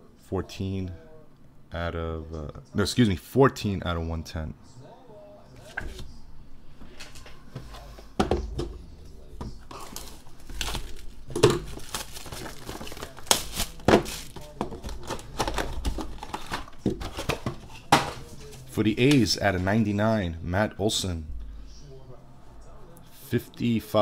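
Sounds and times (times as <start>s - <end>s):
cardboard and paper crinkling: 9.6s - 18.7s.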